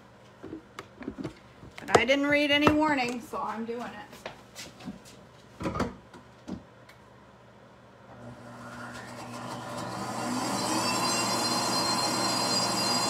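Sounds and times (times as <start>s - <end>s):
blender motor whirring: 8.2s - 13.0s.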